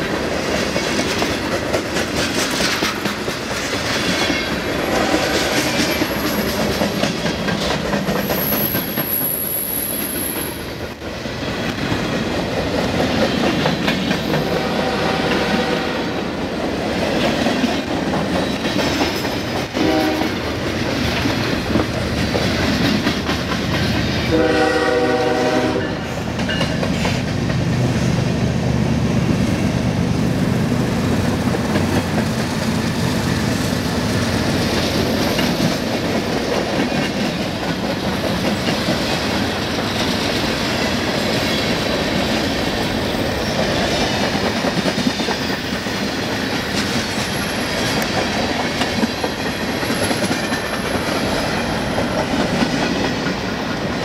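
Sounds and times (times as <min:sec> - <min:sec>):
wheels clacking over rail joints: 0:00.0 - 0:09.4, 0:16.9 - 0:25.6, 0:26.3 - 0:27.9, 0:31.2 - 0:54.0
freight train rumbling past: 0:00.0 - 0:54.0.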